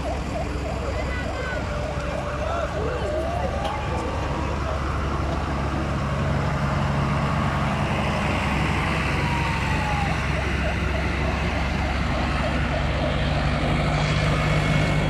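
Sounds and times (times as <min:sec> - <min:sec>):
tractor diesel engines passing: 0:00.0 - 0:15.0.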